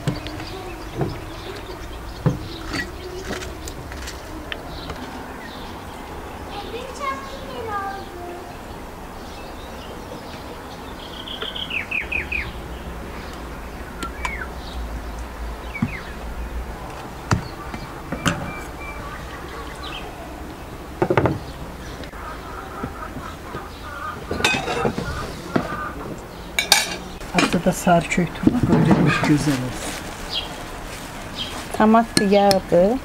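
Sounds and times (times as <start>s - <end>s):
small birds chirping: 0.0s - 33.0s
sharp knocks and clatters: 21.0s - 21.5s.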